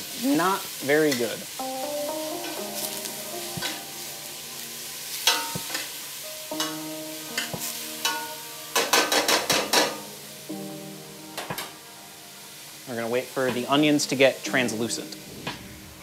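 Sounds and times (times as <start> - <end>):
light sizzle of frying: 0.0 - 16.0.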